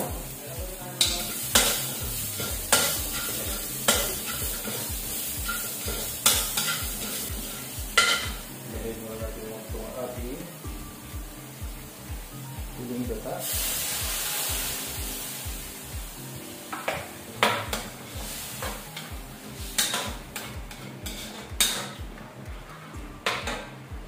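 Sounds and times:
metal ladle scraping wok: 0:01.0 - 0:08.4, 0:17.7 - 0:22.0
liquid hissing in hot wok: 0:01.0 - 0:08.6, 0:13.3 - 0:16.6, 0:17.7 - 0:21.7.

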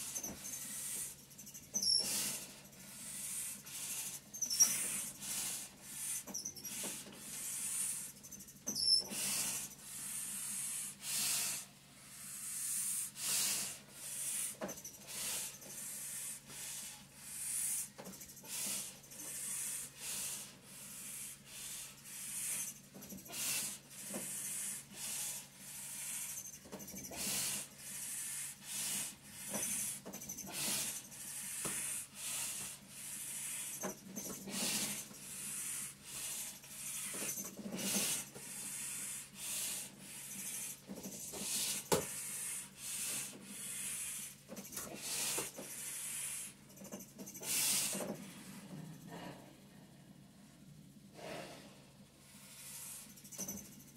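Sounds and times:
heavy breathing through a mask: 0:00.0 - 0:49.7, 0:51.1 - 0:53.7.

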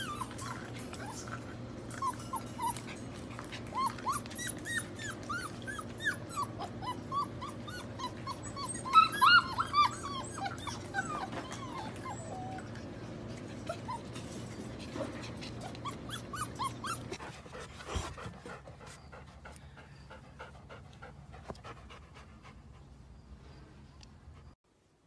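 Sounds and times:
puppies whimpering and yipping: 0:00.0 - 0:17.2.

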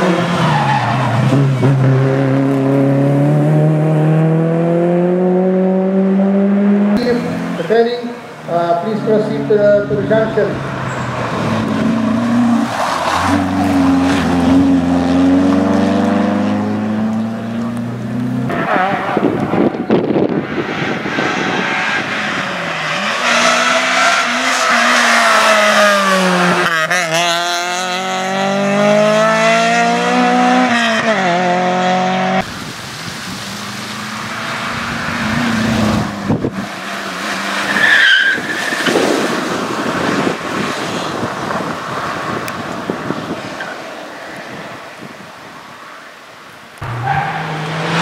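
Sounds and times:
car engine revving: 0:00.0 - 0:43.6, 0:46.8 - 0:48.0
tyre squeal: 0:10.8 - 0:11.5, 0:37.6 - 0:39.0.

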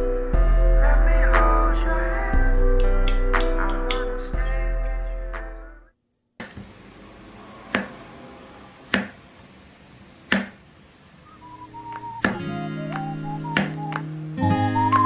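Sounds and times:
background music: 0:00.0 - 0:05.9, 0:11.4 - 0:15.0
soft guitar music: 0:11.6 - 0:15.0.

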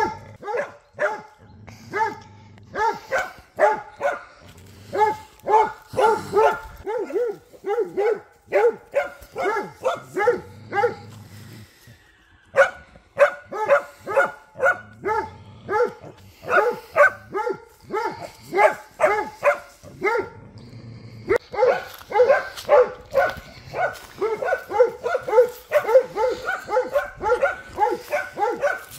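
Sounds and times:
dogs barking: 0:00.0 - 0:11.8, 0:12.4 - 0:20.5, 0:21.2 - 0:28.9.

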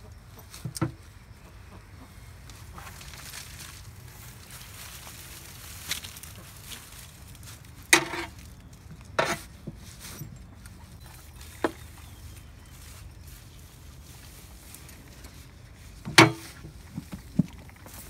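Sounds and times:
straw rustling and scraping: 0:02.4 - 0:18.0
pitchfork knocks: 0:08.0 - 0:08.3, 0:16.1 - 0:16.6.

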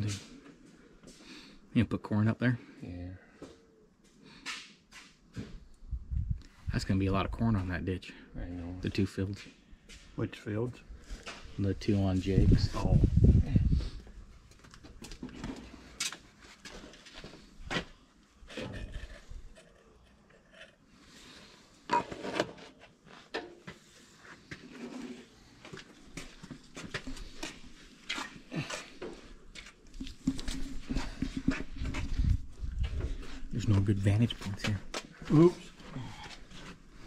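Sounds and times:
plastic jugs clicking and knocking: 0:29.8 - 0:33.2.

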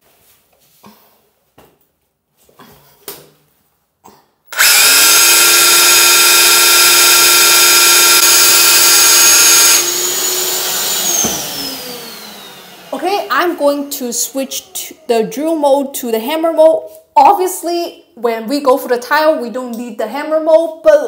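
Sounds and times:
drill motor whining: 0:04.5 - 0:13.0.

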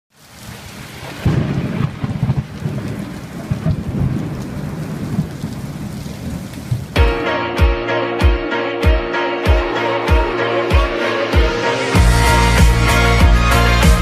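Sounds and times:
steady rain: 0:00.1 - 0:07.1
thunder rumbling: 0:00.4 - 0:07.0.

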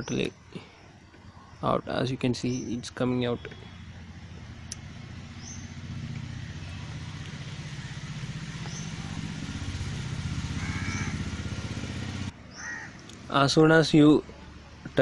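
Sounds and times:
faint bird chirps: 0:00.0 - 0:04.0
vehicle engine throbbing: 0:02.2 - 0:13.2.

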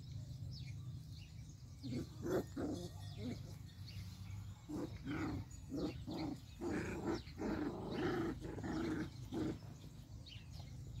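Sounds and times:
puppies play-growling: 0:01.8 - 0:04.0, 0:04.6 - 0:10.9.

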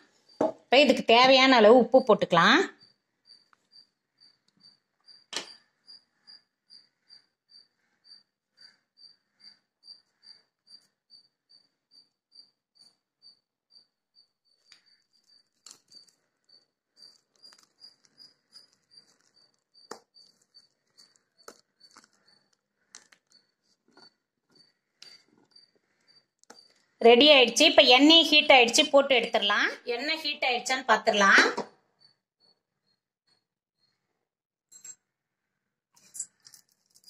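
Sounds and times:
hands squelching batter: 0:17.0 - 0:25.5.

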